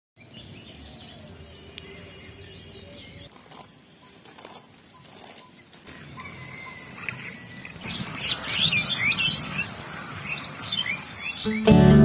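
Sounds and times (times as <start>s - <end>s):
bird chirps: 4.9s - 11.8s.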